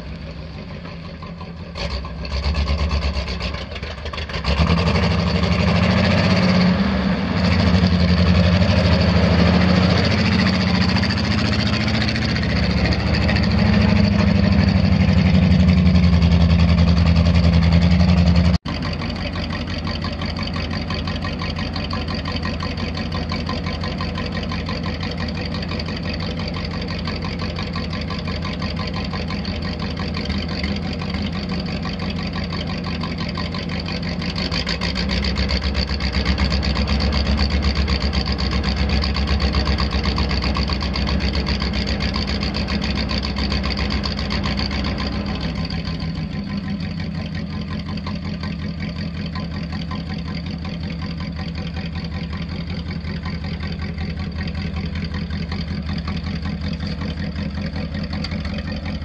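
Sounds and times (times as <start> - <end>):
truck engine running: 0.0 - 59.0.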